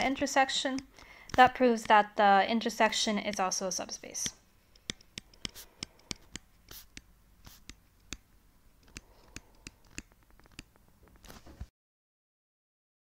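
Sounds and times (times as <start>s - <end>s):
stylus scratchy strokes: 2.8s - 8.2s
stylus tapping on touch screen: 2.9s - 10.8s.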